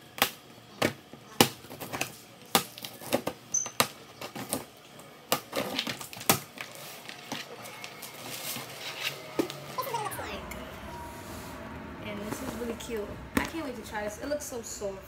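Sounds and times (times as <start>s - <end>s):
cardboard scraping and rustling: 5.5s - 9.3s.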